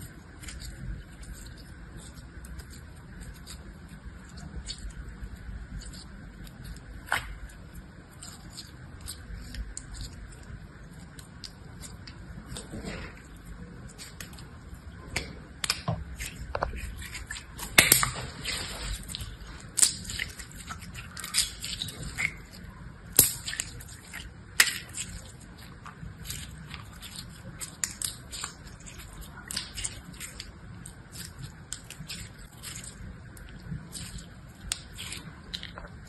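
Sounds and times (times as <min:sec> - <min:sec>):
slime snapping: 0:15.1 - 0:16.4, 0:17.1 - 0:18.3, 0:19.1 - 0:25.4, 0:26.2 - 0:28.6, 0:31.1 - 0:35.8.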